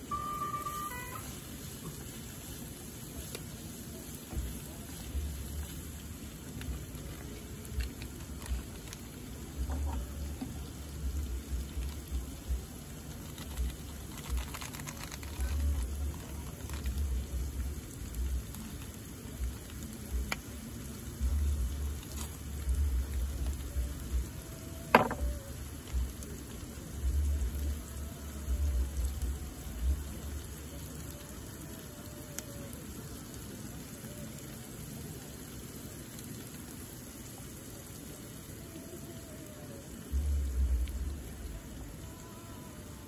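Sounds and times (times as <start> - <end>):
rain pattering: 0.0 - 43.0
low rumbling: 40.1 - 41.9.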